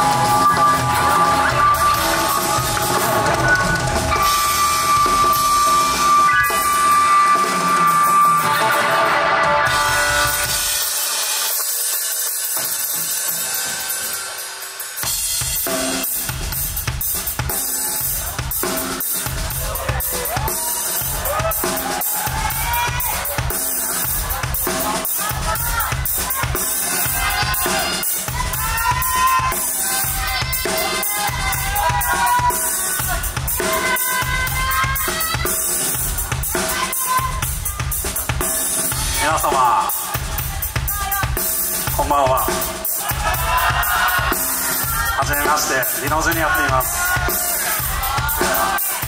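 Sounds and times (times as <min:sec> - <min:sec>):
sliding melodic lead line: 0:00.0 - 0:11.4
bass: 0:00.0 - 0:11.5, 0:12.8 - 0:49.0
kick and snare drum beat: 0:15.0 - 0:49.0.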